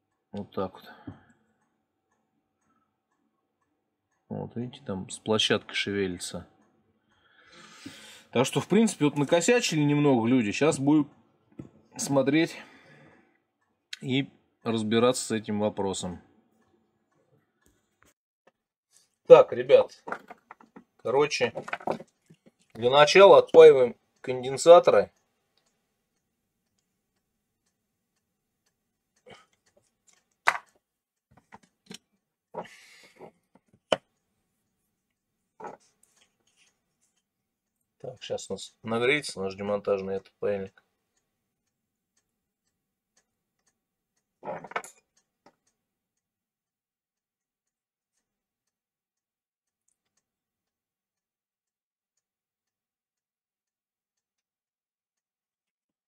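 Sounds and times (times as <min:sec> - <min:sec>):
faint regular ticking: 0:00.0 - 0:18.2, 0:18.9 - 0:52.8
tools clicking on workbench: 0:21.5 - 0:22.6, 0:44.4 - 0:45.0.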